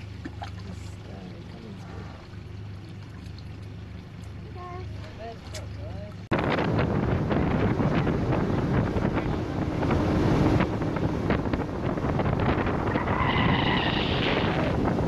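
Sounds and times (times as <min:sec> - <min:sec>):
boat engine and hull rushing: 0:00.0 - 0:15.0
wind buffeting microphone: 0:06.2 - 0:15.0.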